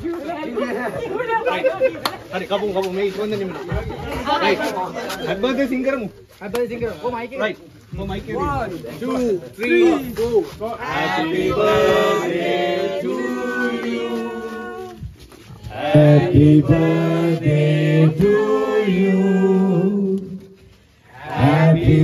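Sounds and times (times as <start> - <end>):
group singing a celebration song: 10.7 - 22.0.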